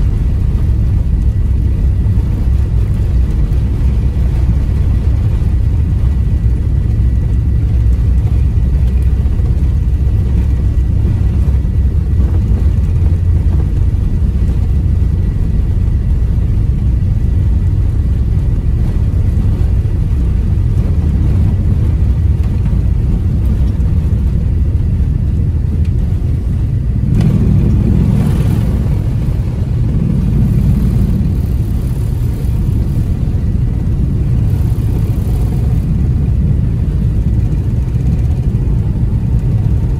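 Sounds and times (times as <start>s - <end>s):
jet engines rumbling: 0.0s - 39.9s
wheels on runway: 0.0s - 39.9s.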